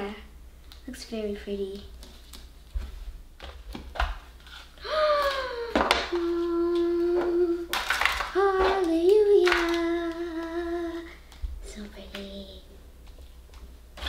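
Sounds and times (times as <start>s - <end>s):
person humming: 4.8s - 7.7s, 8.4s - 11.2s.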